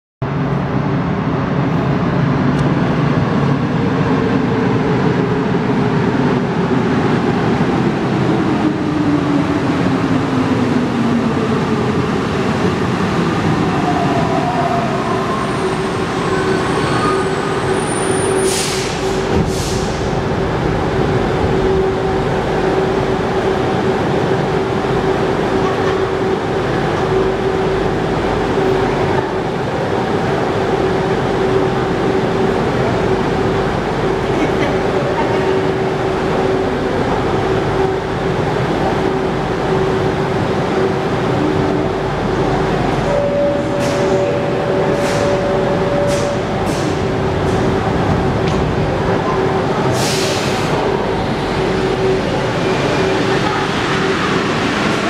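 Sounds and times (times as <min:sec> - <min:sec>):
stopped train humming: 0:00.2 - 0:55.0
metro train braking motor whine: 0:36.2 - 0:48.0.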